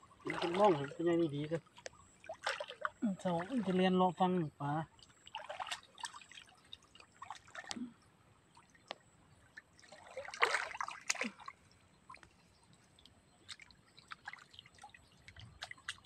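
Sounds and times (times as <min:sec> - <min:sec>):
hands splashing in stream water: 0:00.2 - 0:01.1, 0:01.8 - 0:03.8, 0:05.0 - 0:07.8, 0:09.8 - 0:12.4, 0:13.4 - 0:16.0.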